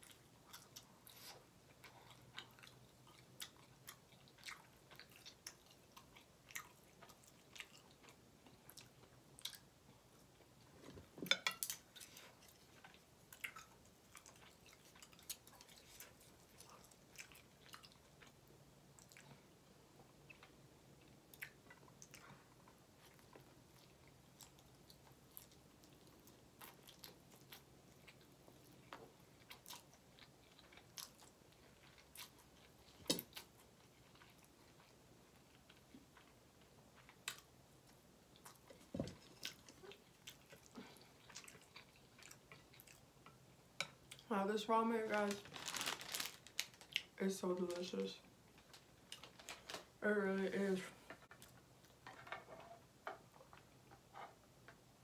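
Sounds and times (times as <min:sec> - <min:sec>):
chewing and lip-smacking: 0:00.0 - 0:10.5, 0:11.6 - 0:44.3.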